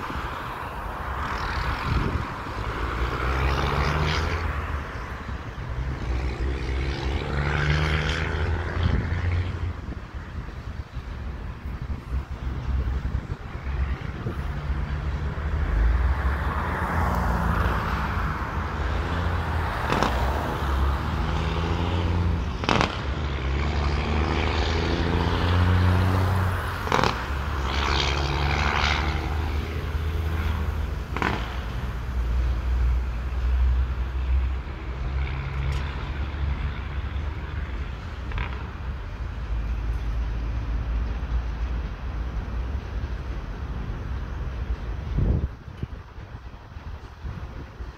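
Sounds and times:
road vehicle passing: 0.0 - 47.9
freight train low rumble: 8.4 - 23.8, 26.0 - 47.9.

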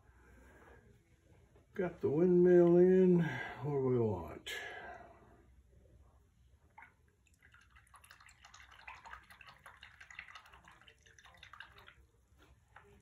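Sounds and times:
small clicks and splashes: 6.7 - 13.0.

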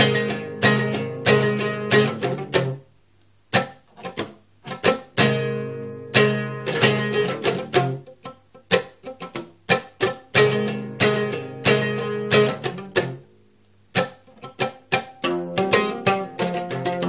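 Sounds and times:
oud plucked melody: 0.0 - 2.9, 3.5 - 17.0.

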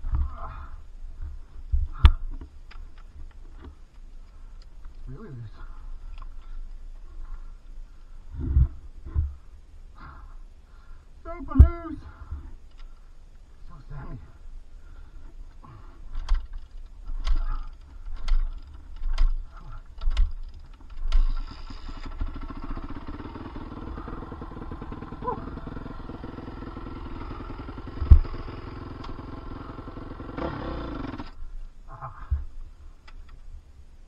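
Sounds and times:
dirt bike engine idling: 14.2 - 33.0
dirt bike kick-start: 16.1 - 31.4.

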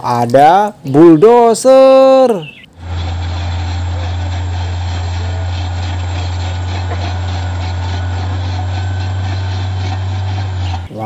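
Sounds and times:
bulldozer diesel engine droning: 2.7 - 11.0.

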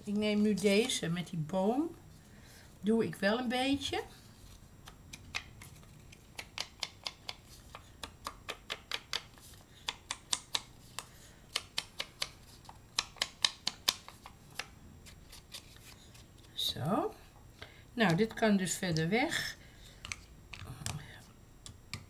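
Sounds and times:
sponge tapping on paper: 8.0 - 10.7.

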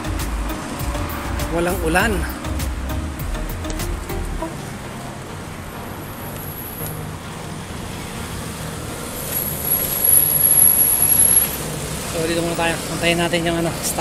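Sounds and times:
passing cars and motorcycles: 0.0 - 14.0
high-pitched steady tone: 9.2 - 11.8.

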